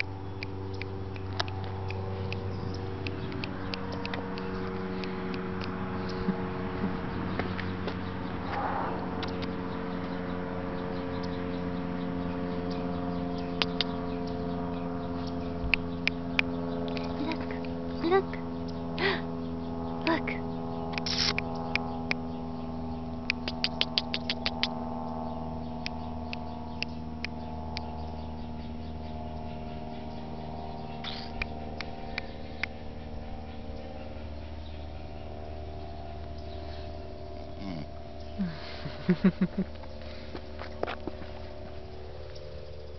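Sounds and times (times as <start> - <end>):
steady mechanical hum: 0.0 - 42.9
short sharp clicks: 20.9 - 22.2.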